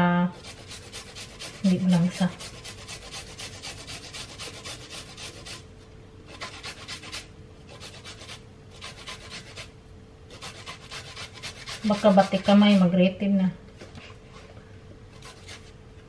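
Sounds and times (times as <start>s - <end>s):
ginger scraping on grater: 0.4s - 5.6s, 6.3s - 9.7s, 10.3s - 13.0s, 15.1s - 15.7s.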